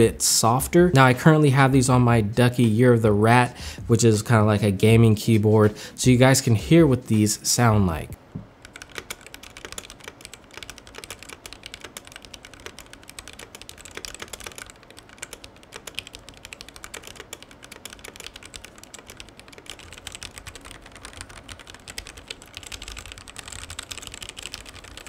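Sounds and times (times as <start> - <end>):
mechanical keyboard typing: 8.6 - 25.0.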